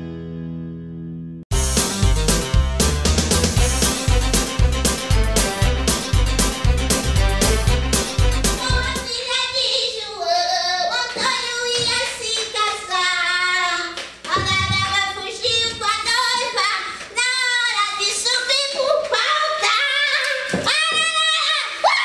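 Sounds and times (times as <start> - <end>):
woman singing with vibrato: 8.5 - 22.0.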